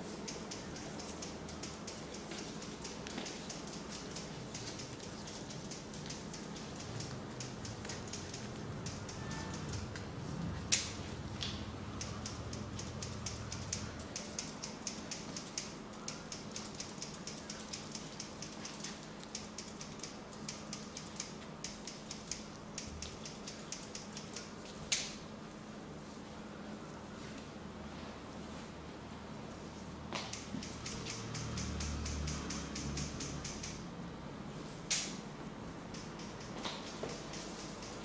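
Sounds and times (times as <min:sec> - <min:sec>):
fingers clicking on skin: 0:00.2 - 0:10.1, 0:10.7 - 0:25.1, 0:30.2 - 0:33.8, 0:35.9 - 0:38.0.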